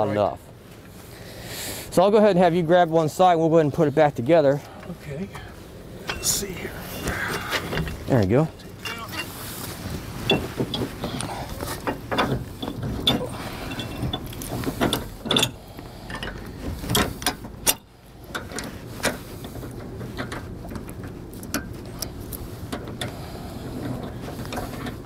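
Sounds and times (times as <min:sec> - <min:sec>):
metal clicks and clanks: 0:10.3 - 0:23.2.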